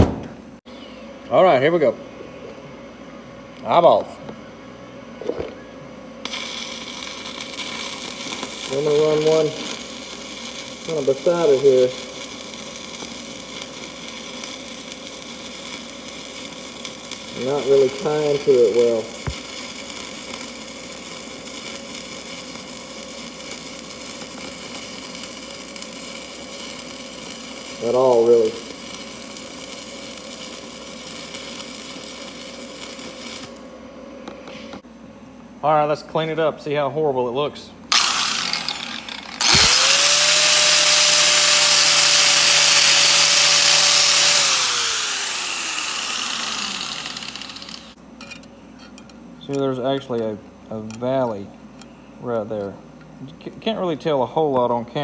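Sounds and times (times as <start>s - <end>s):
welding arc burning: 6.2s - 33.7s, 37.9s - 48.0s
wire wheel grinder scrubbing metal: 6.3s - 33.5s, 37.9s - 48.0s.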